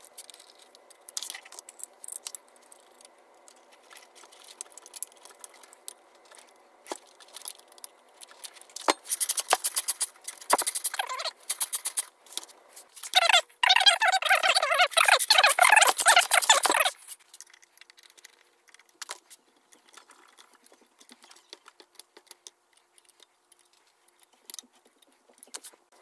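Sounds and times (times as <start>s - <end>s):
metal parts clicking and rattling: 0.0s - 25.8s.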